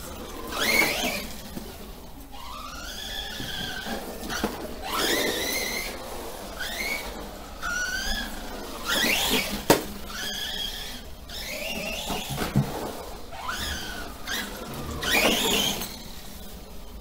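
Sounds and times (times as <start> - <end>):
electric motor whining: 0.0 - 17.0.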